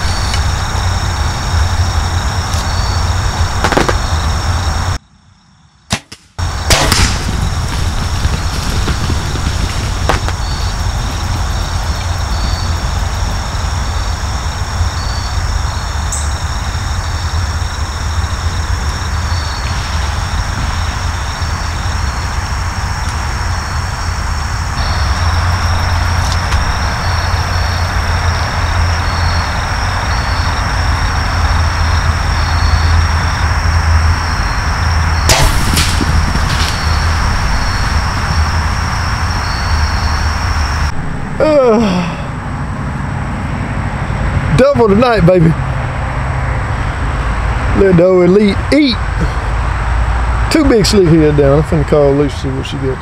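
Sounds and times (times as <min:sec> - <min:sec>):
insects trilling: 0:00.0 - 0:53.0
low rumble: 0:34.0 - 0:44.3.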